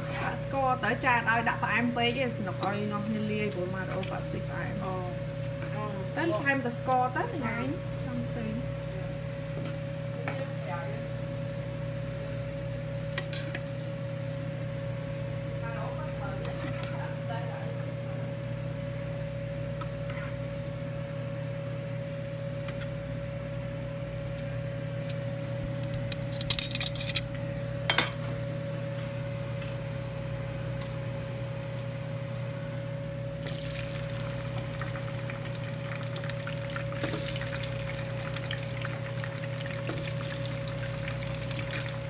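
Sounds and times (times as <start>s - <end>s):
steady low hum: 0.0s - 42.0s
metal tongs clinking: 26.1s - 27.3s
oil sizzling in frying pan: 33.4s - 42.0s.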